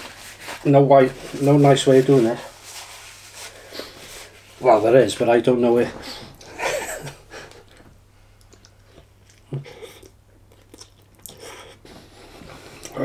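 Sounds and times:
person chewing food: 7.5 - 11.9
small mouth clicks: 8.4 - 11.5
wet mouth sounds: 8.4 - 11.8.

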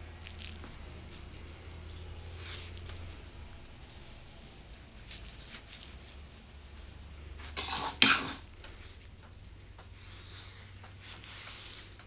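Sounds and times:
spoon scraping in a bowl: 7.5 - 8.5.

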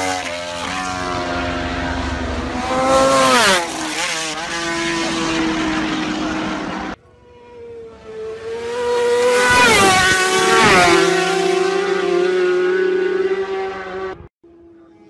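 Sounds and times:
racing motorcycle passing: 0.0 - 15.0.

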